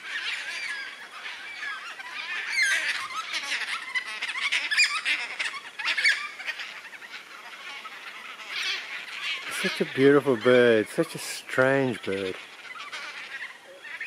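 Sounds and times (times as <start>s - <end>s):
cockatoos calling: 0.0s - 14.0s.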